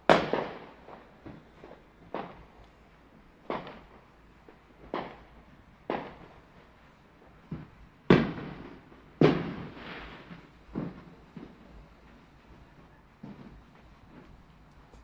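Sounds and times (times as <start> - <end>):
fireworks bangs echoing: 0.0 - 14.6.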